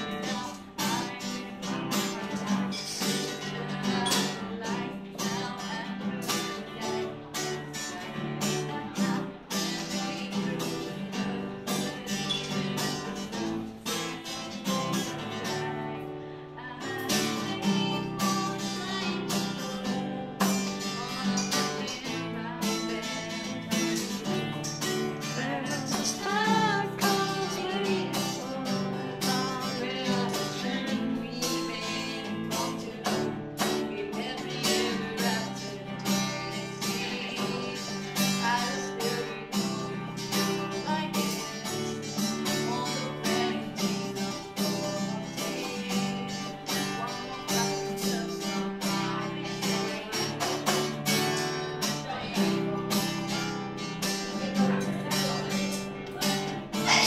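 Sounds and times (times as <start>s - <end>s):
acoustic guitar strumming: 0.0s - 57.0s
person singing: 0.0s - 57.0s.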